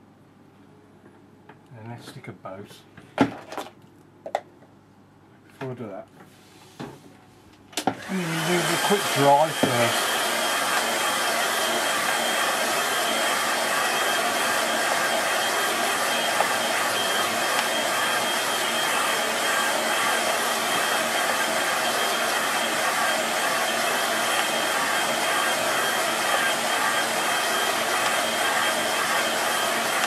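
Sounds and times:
hair dryer blowing: 0:07.8 - 0:30.0.

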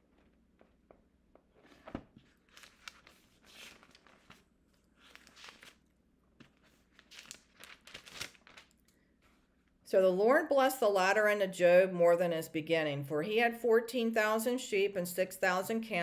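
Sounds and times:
thin pages rustling: 0:01.4 - 0:09.7.

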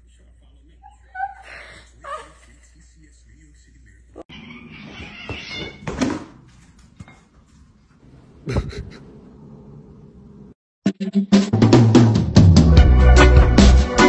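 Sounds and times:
cats meowing and yowling: 0:04.3 - 0:05.9.

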